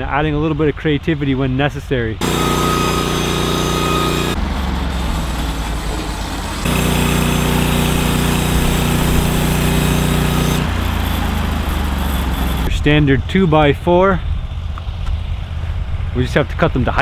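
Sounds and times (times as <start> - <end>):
band blade sawing log: 2.2 - 12.7
sawmill engine running under load: 2.2 - 12.8.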